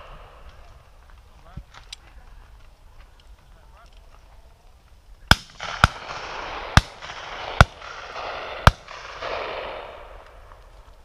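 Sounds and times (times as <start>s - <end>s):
rolling echo: 5.2s - 11.0s
shotgun shots: 5.3s - 10.4s.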